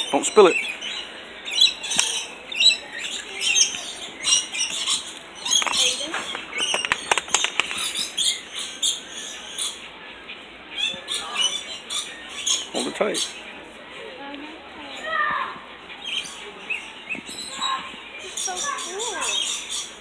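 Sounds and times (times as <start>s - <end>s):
lorikeets chattering and squawking: 0.0s - 13.8s, 14.8s - 20.0s
sharp clicks: 4.6s - 8.1s.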